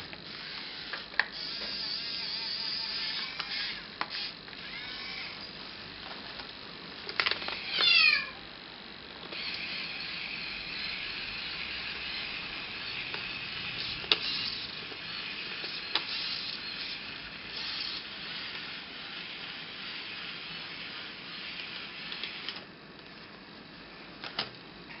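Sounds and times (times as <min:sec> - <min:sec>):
toy electric motor whirring: 0:00.0 - 0:05.6, 0:07.2 - 0:08.3, 0:09.3 - 0:22.6
kitten meowing: 0:07.6 - 0:08.4.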